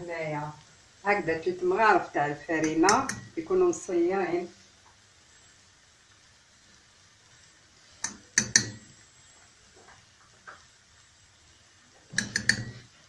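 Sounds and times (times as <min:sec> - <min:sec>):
spoon knocking on saucepan rim: 0:08.0 - 0:08.8, 0:12.1 - 0:12.9.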